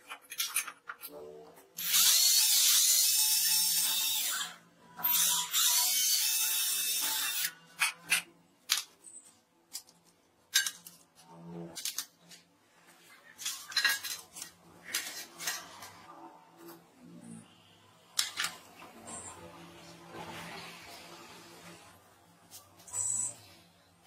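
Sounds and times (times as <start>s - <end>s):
clicks and knocks of parts handled: 0.0s - 1.2s, 7.8s - 12.5s, 13.2s - 16.0s, 18.2s - 18.6s
cordless drill boring into wood: 1.8s - 4.5s.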